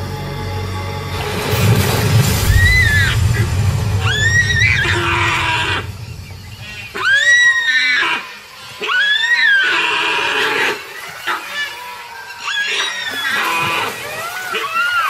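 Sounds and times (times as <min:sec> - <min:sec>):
water splashing: 0:00.9 - 0:15.0
deer screaming in distress: 0:07.0 - 0:15.0.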